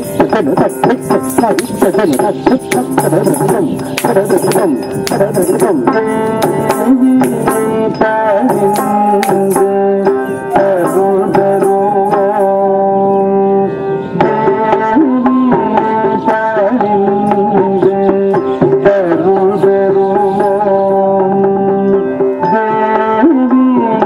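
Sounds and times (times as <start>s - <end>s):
hand-drum strokes: 0.0s - 12.8s
gliding melody: 0.0s - 14.7s.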